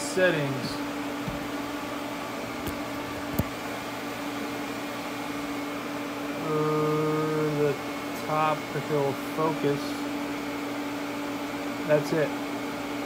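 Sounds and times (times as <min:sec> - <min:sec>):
machine hum: 0:00.7 - 0:04.0.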